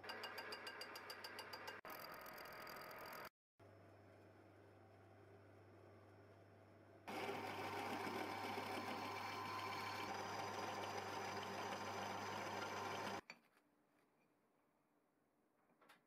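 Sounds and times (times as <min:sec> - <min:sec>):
drill press cutting steel: 0:07.1 - 0:13.2.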